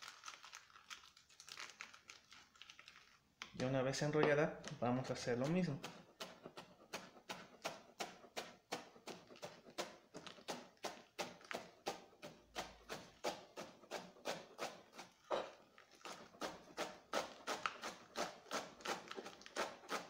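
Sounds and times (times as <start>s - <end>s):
knife shredding lettuce: 4.7s - 20.0s.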